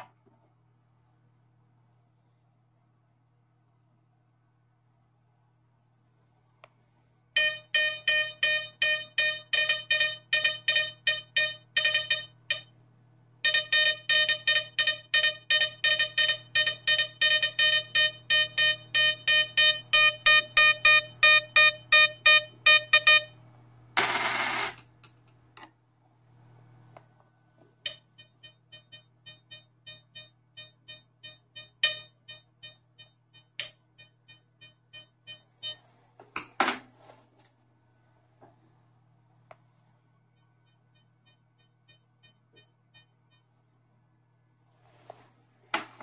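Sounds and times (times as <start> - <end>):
metal detector buzzy beeps: 7.4 - 12.7, 13.4 - 23.4, 27.8 - 35.8, 40.4 - 43.5.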